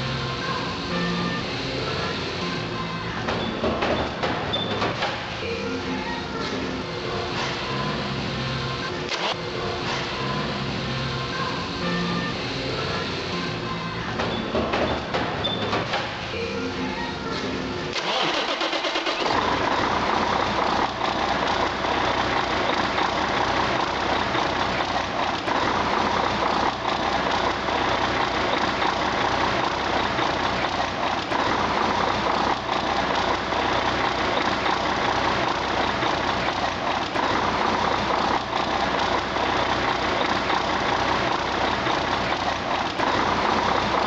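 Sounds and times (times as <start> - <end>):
diesel engine running: 0.0 - 44.0.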